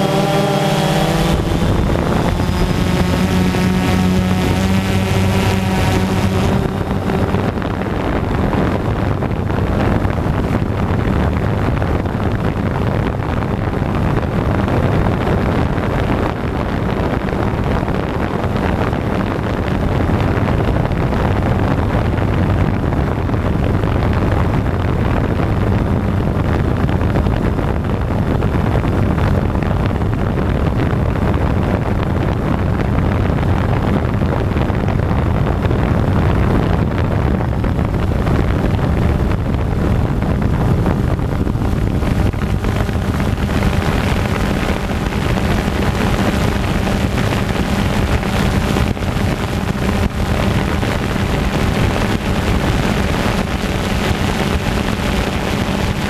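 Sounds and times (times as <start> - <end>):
high-pitched motor whine: 0.0 - 20.3, 31.2 - 56.0
drone motors and propellers: 0.0 - 21.4, 25.6 - 56.0
wind buffeting microphone: 0.0 - 56.0.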